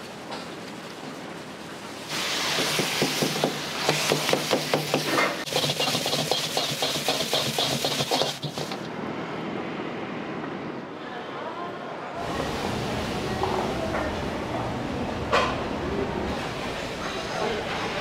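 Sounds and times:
street noise: 0:00.0 - 0:18.0
food sizzling: 0:02.1 - 0:08.9
metal ladle scraping a wok: 0:05.4 - 0:08.9.

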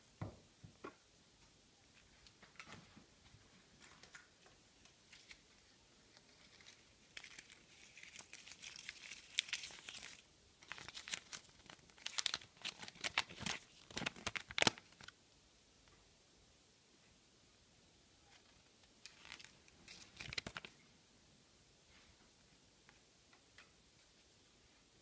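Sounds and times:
paper crinkling: 0:03.7 - 0:15.2, 0:18.4 - 0:20.8.

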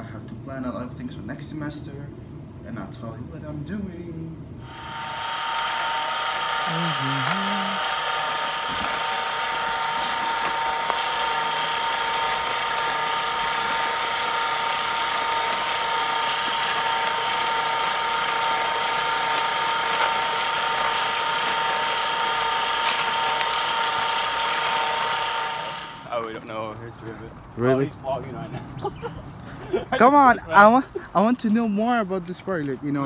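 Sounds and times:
ice cream maker motor whining: 0:04.6 - 0:26.2.

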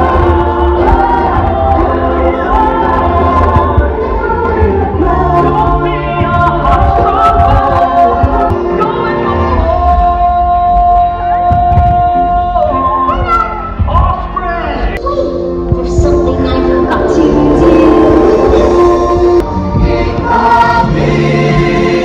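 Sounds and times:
backing music with bass: 0:00.0 - 0:22.0
group of voices singing: 0:00.0 - 0:22.0.

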